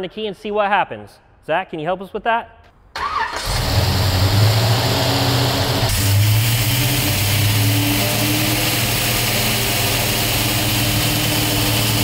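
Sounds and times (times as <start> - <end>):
car engine idling: 3.7 - 12.0.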